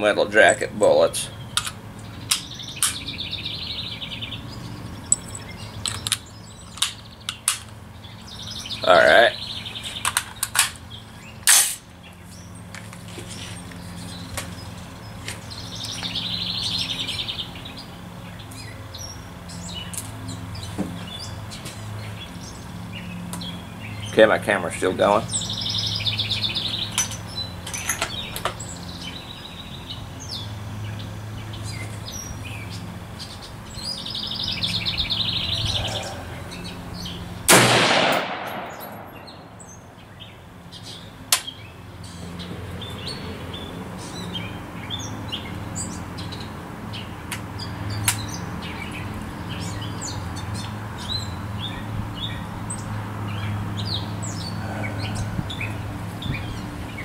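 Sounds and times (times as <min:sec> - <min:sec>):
birds chirping: 0:00.0 - 0:57.0
rifle shot with echo: 0:37.5 - 0:39.6.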